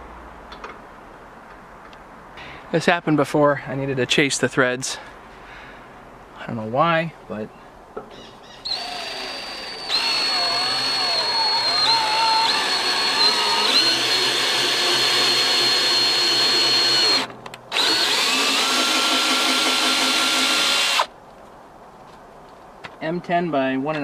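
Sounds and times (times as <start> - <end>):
cordless drill motor whine: 8.7 - 21.1.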